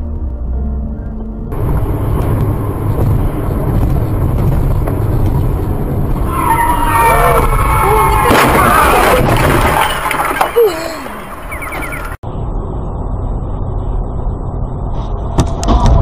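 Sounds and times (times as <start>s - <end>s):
car road and engine rumble: 0.0s - 16.0s
tyres skidding squeal: 6.1s - 12.2s.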